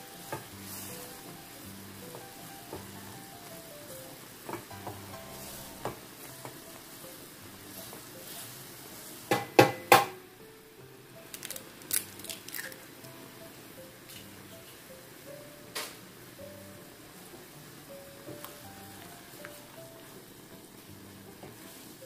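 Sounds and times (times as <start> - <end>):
water boiling and bubbling: 0.0 - 22.0
egg cracking knocks: 9.3 - 10.2, 11.3 - 12.8
spatula tapping against pan: 9.3 - 10.2.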